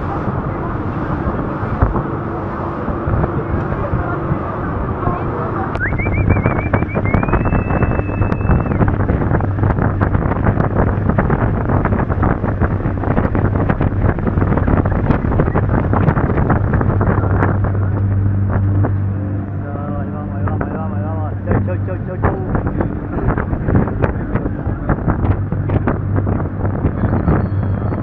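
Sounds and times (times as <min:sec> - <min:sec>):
rushing water: 0:00.0 - 0:27.0
boat engine hum: 0:00.0 - 0:28.0
wind buffeting microphone: 0:00.0 - 0:28.0
high whistle: 0:05.8 - 0:08.8.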